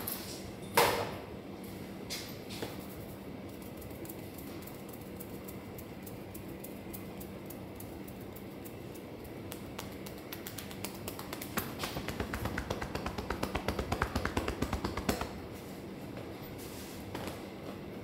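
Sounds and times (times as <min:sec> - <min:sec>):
room hum: 0:00.0 - 0:18.0
fingers crackling through damp hair: 0:07.2 - 0:15.4.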